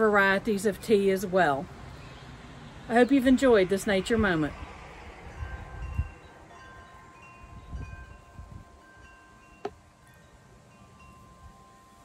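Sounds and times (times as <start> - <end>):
wind rumble on microphone: 2.3 - 10.2
wind chime tinkling: 5.2 - 12.0.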